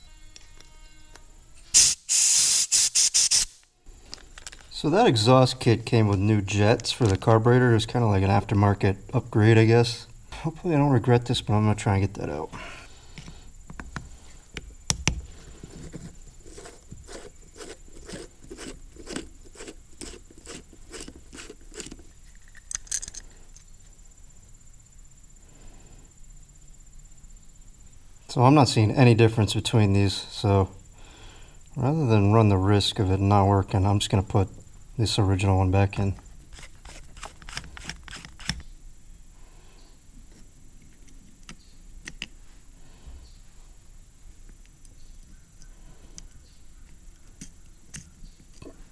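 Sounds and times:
screwdriver clicking on metal parts: 0:18.1 - 0:23.3, 0:36.6 - 0:38.7.

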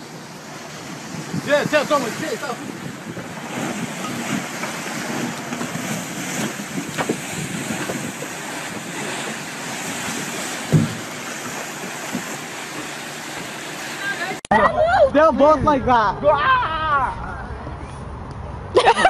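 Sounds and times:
wind buffeting microphone: 0:00.0 - 0:13.6
waves and churning water: 0:00.0 - 0:17.8
low thump: 0:10.7 - 0:11.1.

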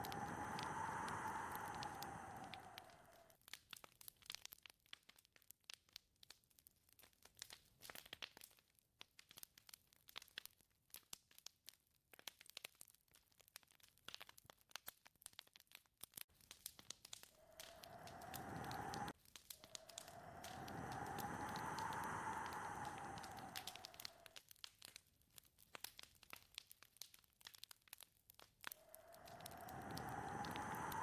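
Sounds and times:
wind gust: 0:00.0 - 0:03.1, 0:17.4 - 0:24.3, 0:28.8 - 0:31.0
faint crackling and clicking: 0:00.0 - 0:31.0.

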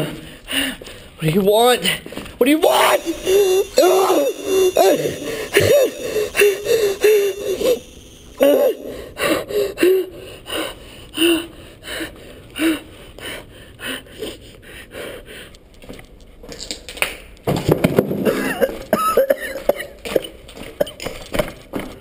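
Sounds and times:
person panting hard: 0:08.8 - 0:15.5.

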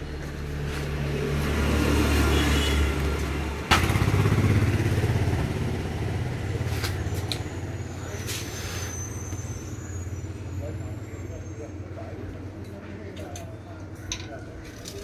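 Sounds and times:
engine humming: 0:00.0 - 0:12.6.

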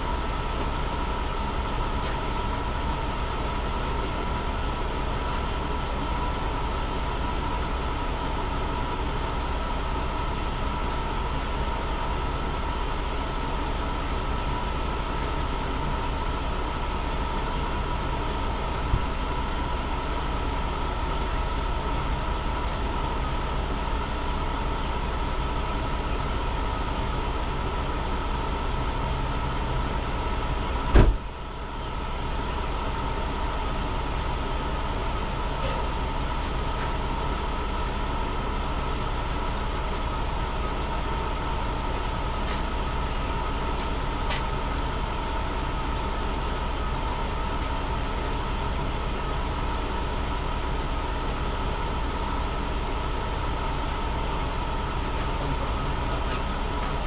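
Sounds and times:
car engine idling: 0:00.0 - 0:57.0
sharp knock: 0:30.9 - 0:31.3.

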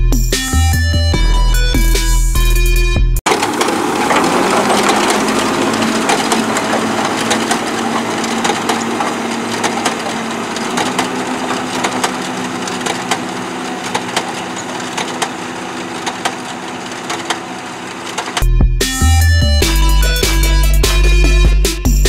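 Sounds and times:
tractor diesel engine running: 0:00.0 - 0:22.0
planter mechanism clicks and rattles: 0:03.3 - 0:18.5.

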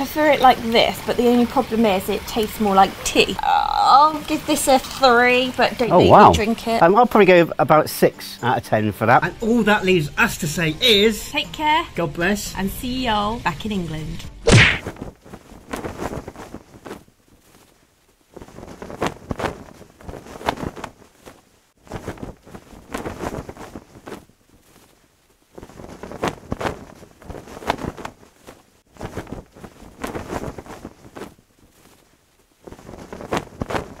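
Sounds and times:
flag flapping in wind: 0:14.7 - 0:34.0.

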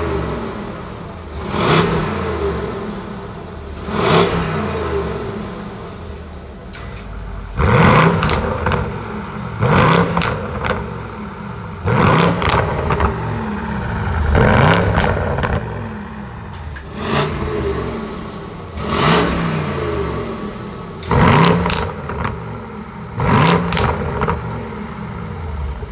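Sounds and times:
car engine revving: 0:00.0 - 0:25.9.

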